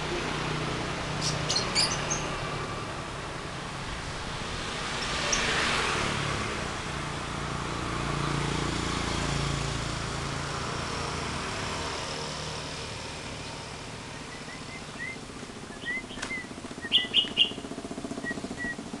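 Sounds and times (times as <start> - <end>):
shrill bird calls: 1.2 - 2.3, 14.2 - 18.8
lovebirds chirping: 1.2 - 2.4, 14.1 - 18.8.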